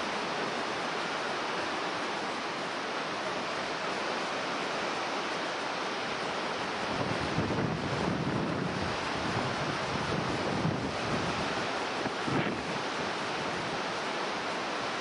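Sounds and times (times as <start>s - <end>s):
wind buffeting microphone: 6.8s - 13.9s.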